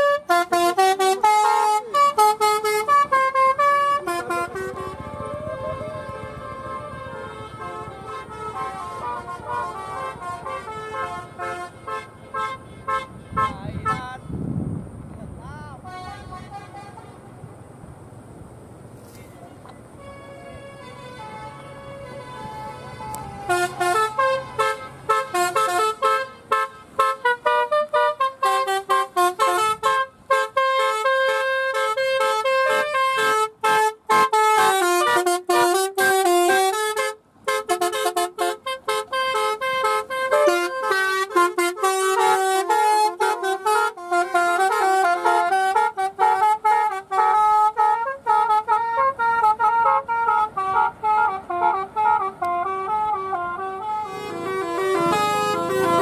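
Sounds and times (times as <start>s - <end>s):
musical horn playing fast tune: 0.0s - 14.3s, 20.0s - 56.0s.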